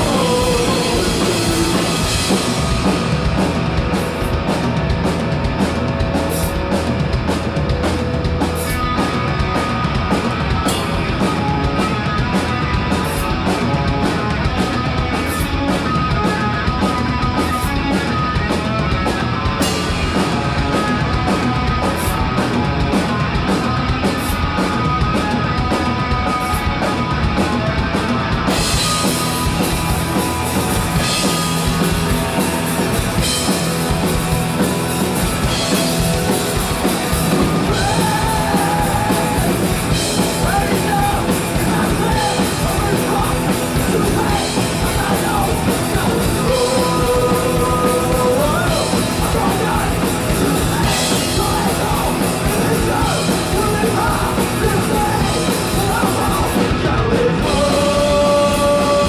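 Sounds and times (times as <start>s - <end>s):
man singing: 0.0s - 2.5s, 37.4s - 59.0s
drum kit: 0.0s - 59.0s
electric guitar: 0.0s - 59.0s.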